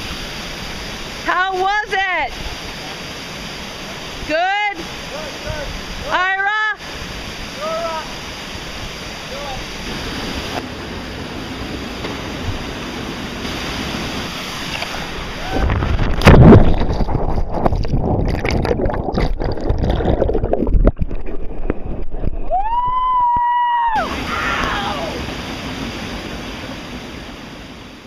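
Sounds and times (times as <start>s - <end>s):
river water rushing: 0.0s - 20.6s, 23.9s - 28.0s
water churning and sloshing: 0.0s - 22.4s, 24.0s - 28.0s
wind: 0.0s - 28.0s
person splashing into water: 14.7s - 21.5s.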